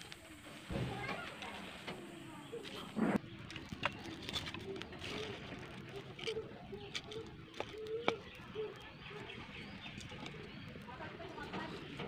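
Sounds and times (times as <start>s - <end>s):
sticks snapping in wood fire: 3.4s - 10.8s
dove cooing: 4.0s - 9.4s.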